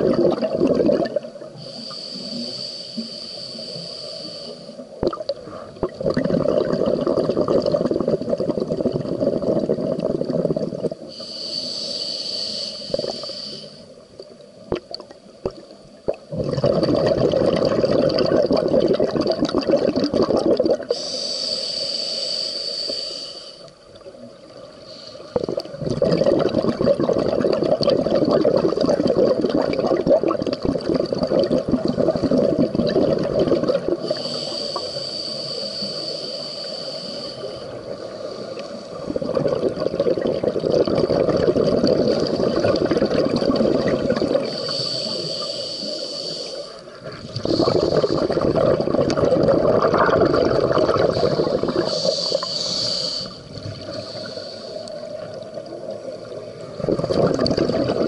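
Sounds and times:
bubbling exhaled air: 0.0s - 13.8s, 14.7s - 23.2s, 24.9s - 58.0s
hissing regulator inhalation: 1.5s - 5.0s, 11.0s - 14.0s, 20.8s - 23.8s, 33.9s - 39.8s, 44.2s - 50.0s, 50.6s - 55.4s.

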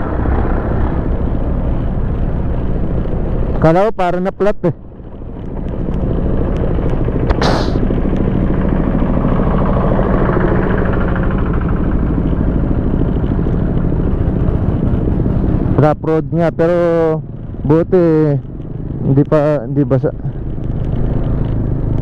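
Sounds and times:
road rumble: 0.0s - 22.0s
scooter engine running: 4.8s - 15.7s
short hiss: 7.3s - 7.8s.

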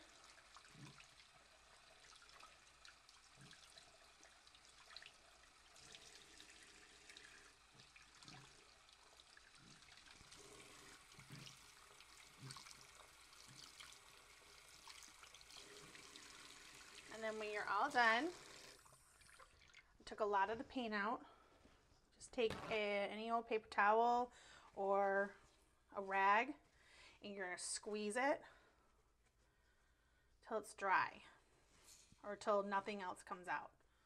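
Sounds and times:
soft water splashes: 0.0s - 20.0s
tap running into a sink: 9.6s - 14.0s.

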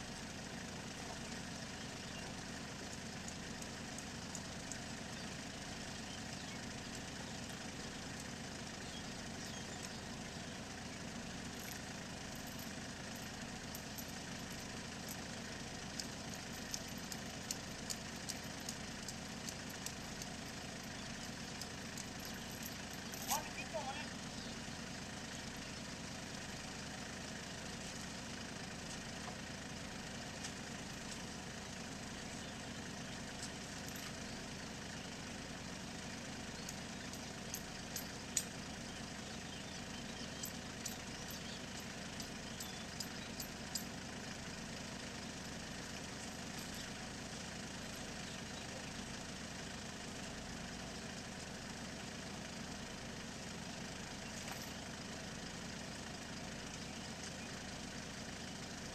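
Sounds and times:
tractor engine idling: 0.0s - 58.9s
light sharp ticks: 2.9s - 4.9s, 15.9s - 23.3s.

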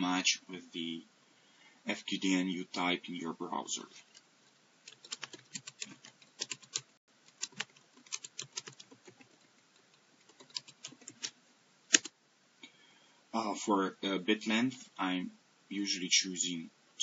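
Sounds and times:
computer keyboard typing: 4.8s - 12.1s.

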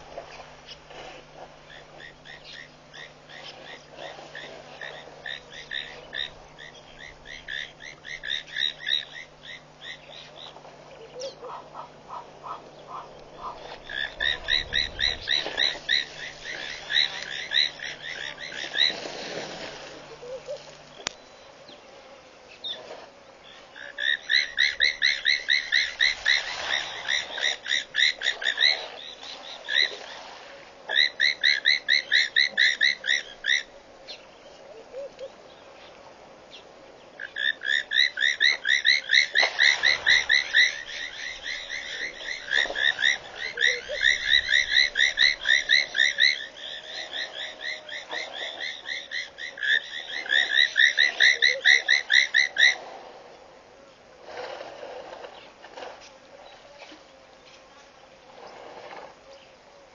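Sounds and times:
frog calling in rapid beeps: 13.9s - 19.0s, 37.3s - 52.8s.

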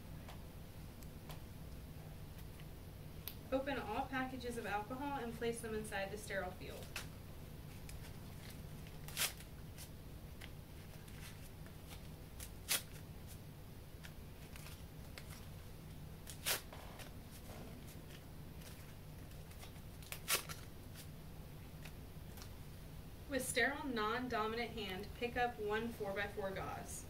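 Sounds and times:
faint steady hum: 0.0s - 27.0s
foil packets crinkling: 7.7s - 13.4s, 14.0s - 21.1s.

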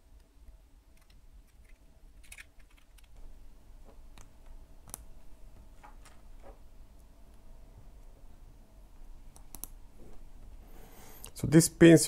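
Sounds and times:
plastic pieces clicking: 1.0s - 3.2s.

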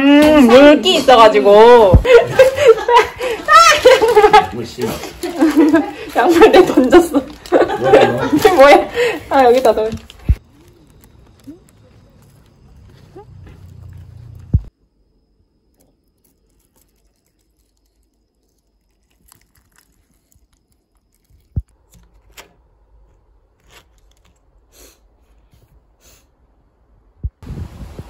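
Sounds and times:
packaging clicks and crinkles: 3.4s - 13.2s, 23.5s - 24.6s.

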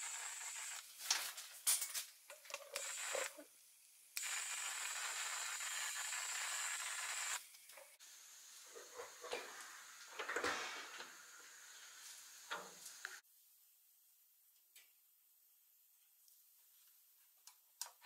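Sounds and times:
spray gun hissing: 2.8s - 3.5s, 4.2s - 7.4s.

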